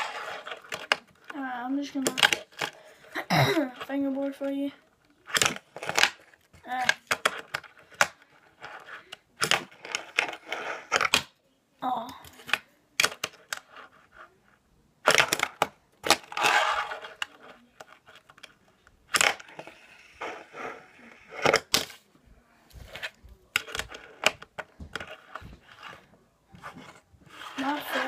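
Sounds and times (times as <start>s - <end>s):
small wheels rolling scrapes: 0.0s - 0.7s, 16.3s - 17.4s, 27.3s - 28.0s.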